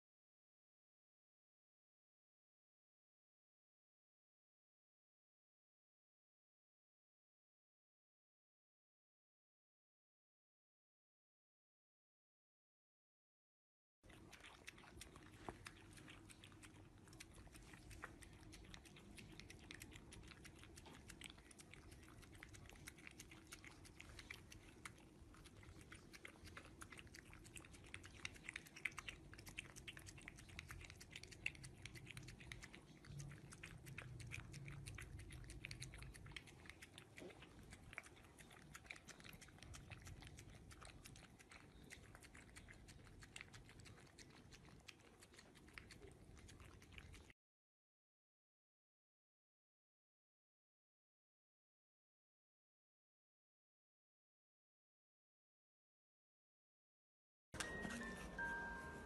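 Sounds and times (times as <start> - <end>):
puppy chewing wet food: 14.0 - 47.4, 57.6 - 59.0.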